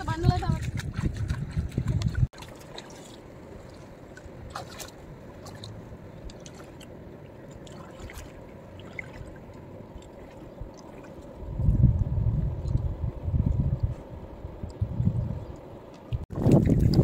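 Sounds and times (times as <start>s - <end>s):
seawater lapping: 0.0s - 11.6s
splashes from people wading: 2.4s - 6.9s, 7.5s - 11.3s.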